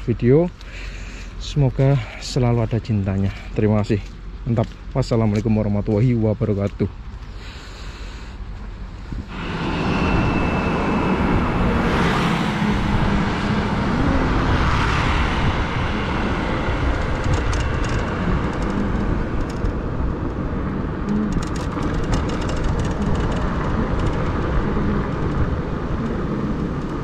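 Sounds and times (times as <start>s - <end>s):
road traffic rumble: 0.0s - 27.0s
wind: 0.0s - 27.0s
motorbikes and cars passing: 9.0s - 27.0s.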